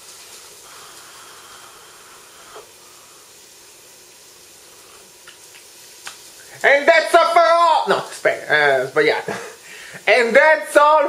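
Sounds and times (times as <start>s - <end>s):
faint steady hiss: 0.0s - 11.0s
person slurping from a mug: 0.8s - 2.8s.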